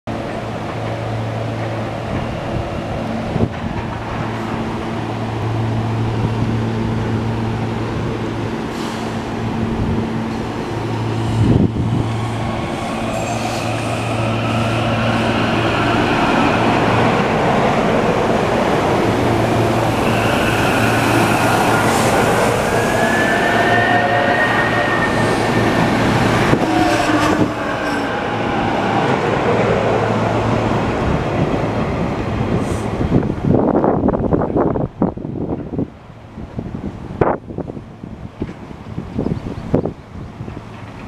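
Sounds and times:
wheels rumbling on rail: 0.1s - 41.0s
train electrical hum: 0.2s - 36.2s
traction drive whine: 9.8s - 30.5s.

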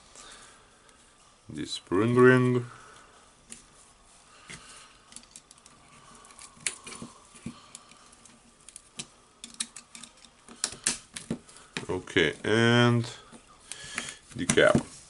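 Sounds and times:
small metal clicks and scrapes: 4.5s - 11.0s.

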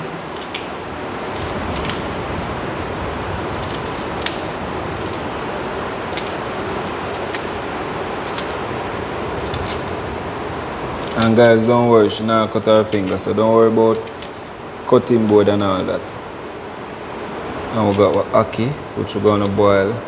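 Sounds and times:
steady hiss: 0.0s - 20.0s
knife snicking through stems: 6.0s - 7.6s, 11.0s - 11.7s.

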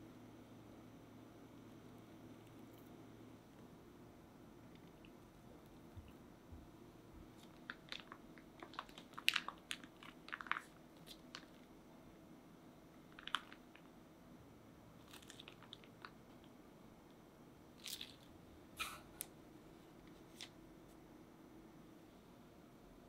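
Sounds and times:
plastic piping bag crinkling: 7.2s - 11.8s, 13.0s - 14.0s, 15.0s - 16.6s, 17.8s - 18.3s.

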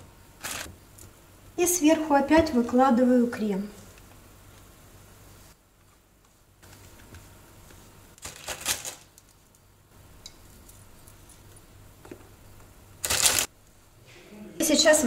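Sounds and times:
plastic wrapper crinkling: 0.4s - 0.7s, 8.2s - 9.5s, 13.0s - 13.5s.

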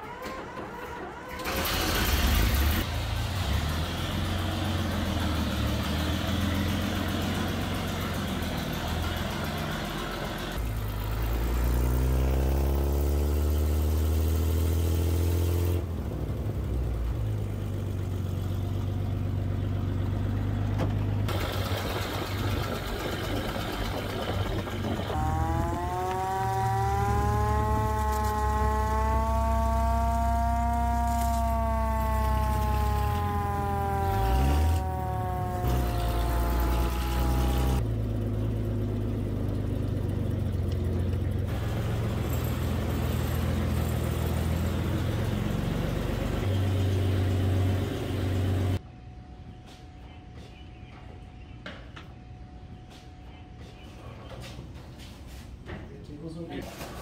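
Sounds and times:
hand-cranked siren wailing: 0.0s - 2.0s, 25.1s - 37.8s
fire truck engine running: 0.0s - 14.4s, 15.8s - 48.8s.

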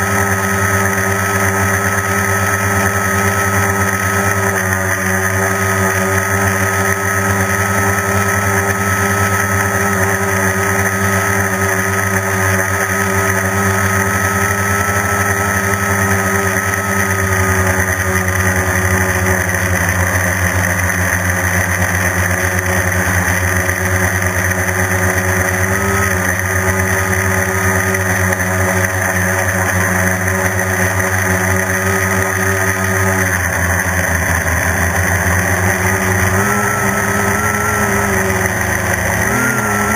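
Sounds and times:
drone propellers droning: 0.0s - 39.9s.

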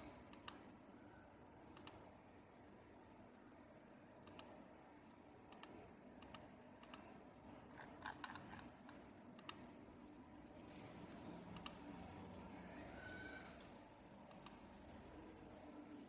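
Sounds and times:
computer mouse clicks: 0.1s - 0.7s, 1.7s - 2.0s, 4.2s - 4.7s, 5.5s - 9.7s, 11.5s - 11.9s, 14.2s - 14.7s.

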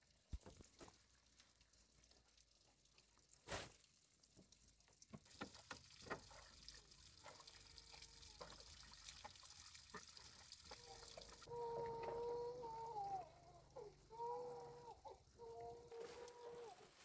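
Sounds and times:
water trickling: 0.0s - 16.7s
high drawn-out call: 11.5s - 16.9s.

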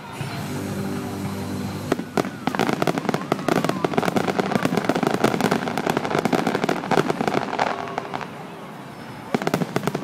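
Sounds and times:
fireworks bangs: 1.0s - 10.0s.

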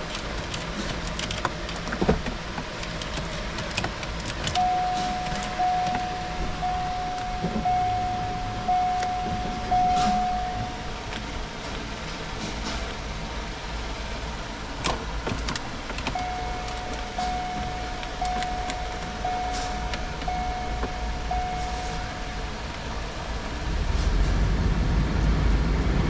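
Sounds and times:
electronic warning chime: 4.5s - 11.1s, 16.2s - 22.7s.

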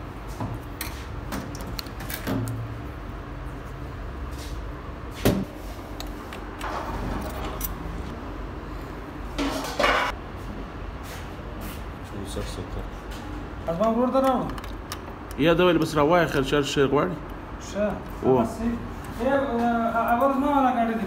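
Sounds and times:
metal parts clicking and clinking: 6.0s - 7.8s, 14.2s - 15.4s.

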